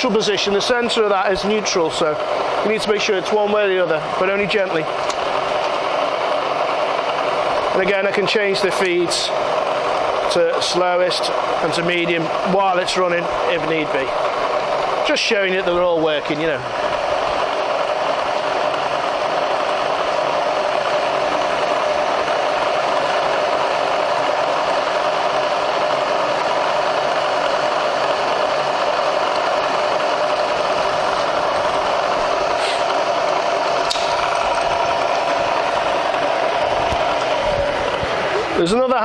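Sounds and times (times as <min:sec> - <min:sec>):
milling machine whirring: 0:00.0 - 0:39.0.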